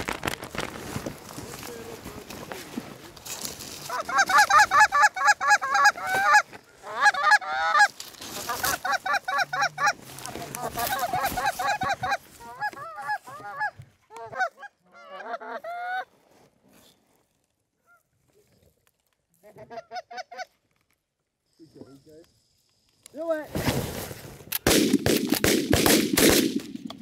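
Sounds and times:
goose calls honking: 3.8 - 16.0.

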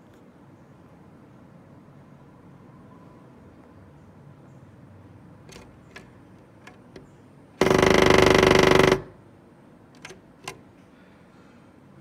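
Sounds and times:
woodpecker drumming on wood: 5.5 - 9.2.

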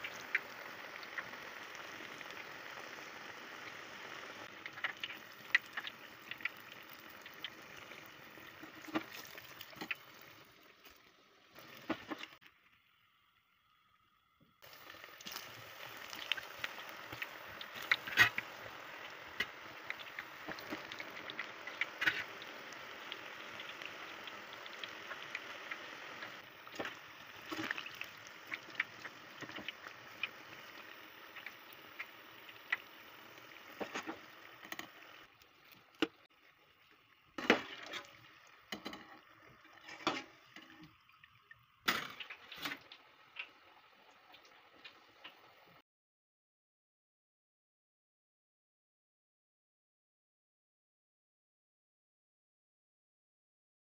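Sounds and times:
food sizzling in hot oil: 0.0 - 12.5, 14.6 - 45.8.

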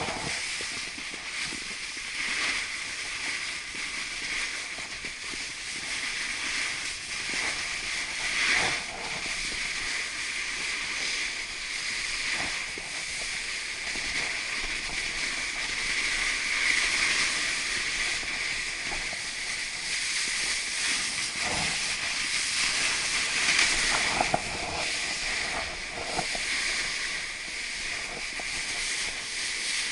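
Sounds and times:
snowboard gliding over snow: 0.0 - 29.9
snowboard scrapes: 0.0 - 29.9
wind on microphone: 0.0 - 29.9.

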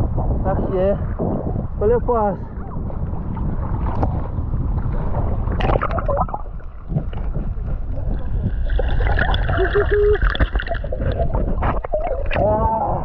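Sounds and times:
muffled water sloshing and rumbling: 0.0 - 13.0
water splash: 5.2 - 12.7.

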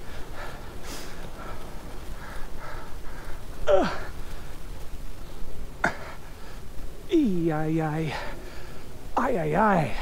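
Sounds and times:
man groaning: 7.1 - 8.4.

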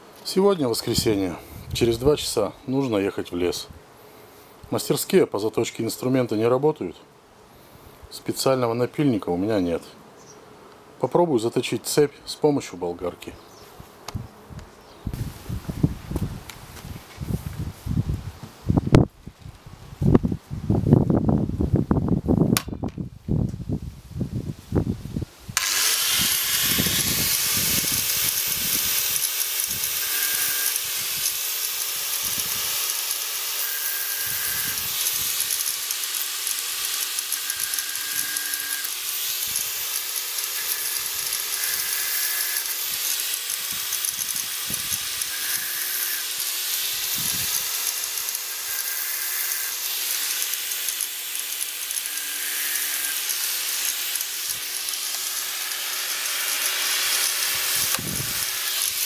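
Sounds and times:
angle grinder whining: 25.6 - 59.0.

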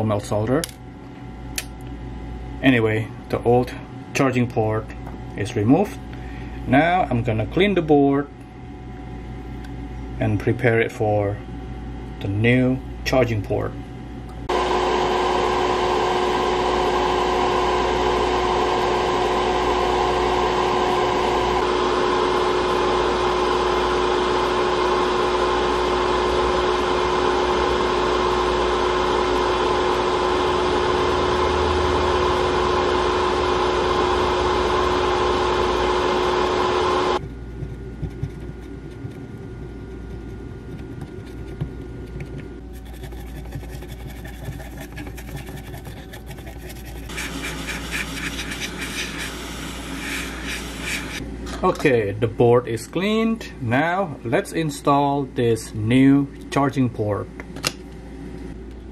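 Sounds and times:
extractor fan humming: 13.8 - 53.6.

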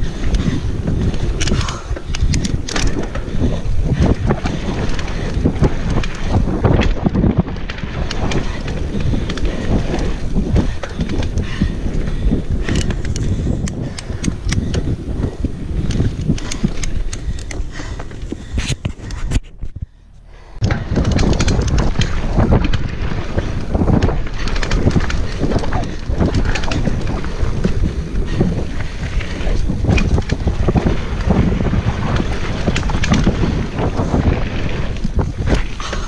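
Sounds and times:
mountain bike rattling on dirt trail: 0.0 - 19.5, 20.4 - 36.0
wind buffeting microphone: 0.0 - 36.0.

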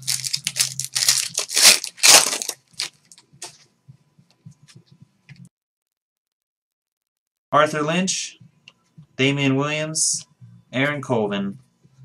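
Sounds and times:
foil wrapper tearing and crinkling: 0.0 - 3.0.

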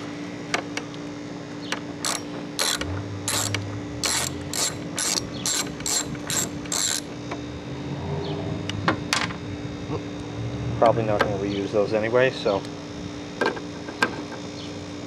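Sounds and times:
socket ratchet clicking: 2.0 - 7.1.

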